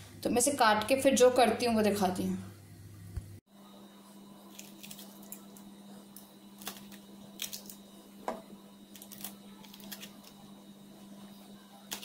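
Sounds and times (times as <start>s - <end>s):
knife snipping chillies: 8.9s - 10.4s.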